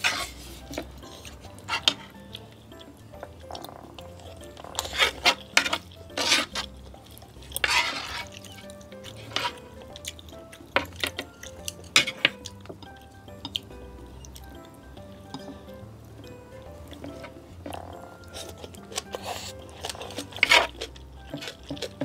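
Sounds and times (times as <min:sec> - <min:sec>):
metal spoon scraping a plate: 0:00.0 - 0:02.2, 0:04.2 - 0:06.7, 0:07.4 - 0:09.6, 0:10.8 - 0:12.4
wet chewing and smacking: 0:00.0 - 0:22.0.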